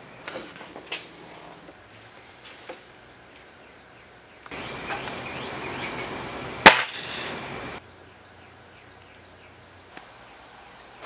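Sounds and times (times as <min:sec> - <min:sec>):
high insect chirring: 0:04.4 - 0:07.8
air rifle shot crack: 0:06.6 - 0:07.6.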